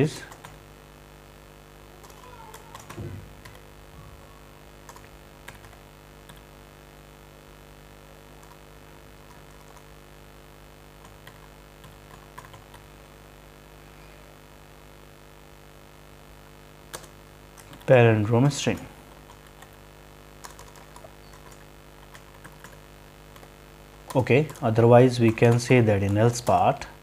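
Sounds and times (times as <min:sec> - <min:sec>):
low electrical hum: 0:00.0 - 0:27.0
keyboard typing: 0:00.3 - 0:00.6, 0:02.0 - 0:03.6, 0:04.8 - 0:06.5, 0:09.2 - 0:09.9, 0:11.0 - 0:12.9, 0:16.9 - 0:18.0, 0:20.4 - 0:26.7.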